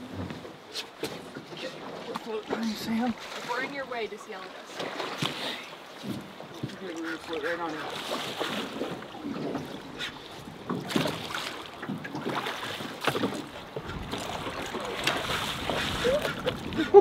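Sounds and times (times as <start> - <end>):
water lapping against metal hull: 0.0 - 17.0
wind gusts on microphone: 13.6 - 17.0.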